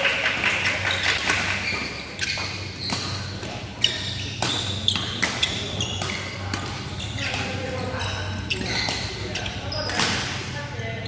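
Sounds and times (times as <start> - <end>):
shoes squeaking on court floor: 0.5 - 10.5
racket hitting shuttlecock: 1.1 - 7.9, 9.8 - 10.4.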